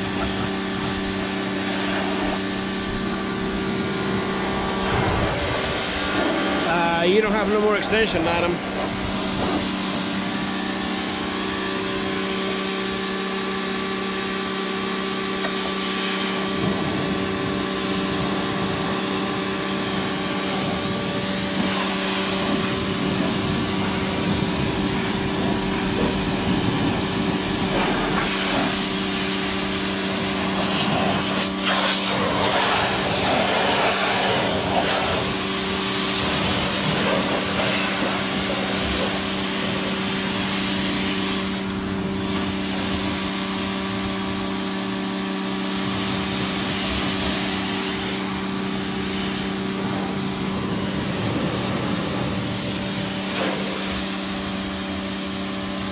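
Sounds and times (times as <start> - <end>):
pressure washer motor hum: 0.0 - 55.9
water spray hissing: 9.0 - 41.6.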